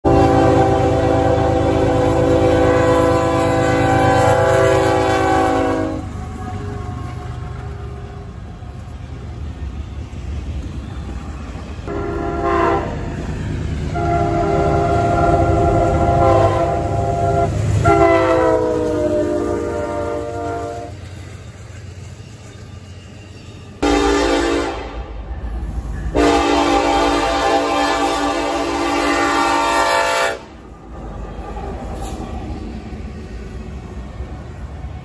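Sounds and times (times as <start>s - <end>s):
locomotive air horn: 0.0s - 8.2s, 11.9s - 13.1s, 13.9s - 21.0s, 23.8s - 25.1s, 26.1s - 30.6s
passing train rumble: 0.0s - 35.0s.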